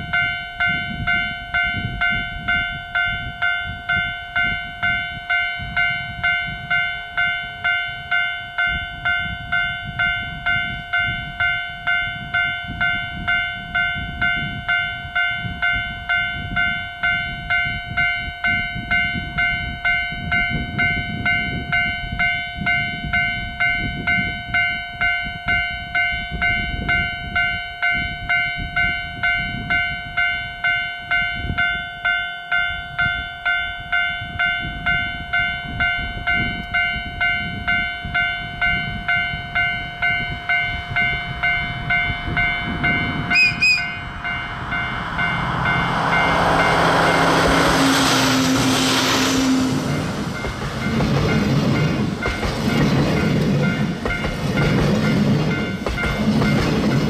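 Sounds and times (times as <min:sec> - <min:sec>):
level crossing warning bell: 0:00.0 - 0:57.0
diesel locomotive engine: 0:33.8 - 0:57.0
locomotive whistle: 0:40.6 - 0:51.8
rolling train wagons: 0:46.3 - 0:57.0.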